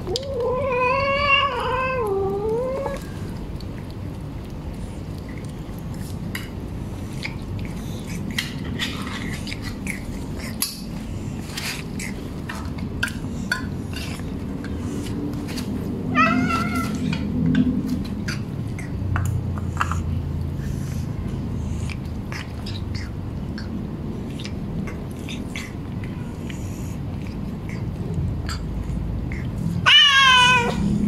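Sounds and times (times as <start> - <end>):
cat meowing: 0.0 - 3.0, 16.1 - 17.3, 29.8 - 30.9
cat crunching dry kibble: 0.0 - 18.4.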